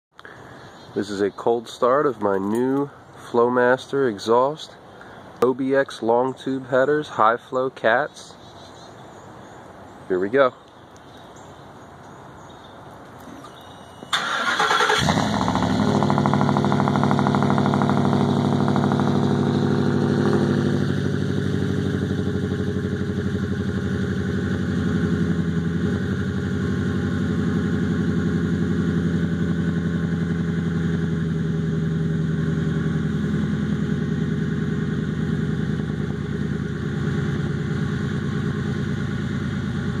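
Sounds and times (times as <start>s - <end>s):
engine cranking: 13.5s - 16.7s
engine idling: 14.1s - 40.0s.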